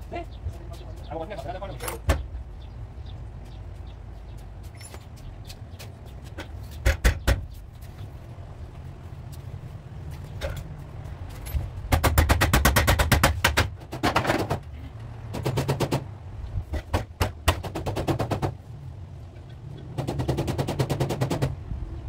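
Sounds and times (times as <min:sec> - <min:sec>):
metal knocks and clatter: 0:10.2 - 0:18.6.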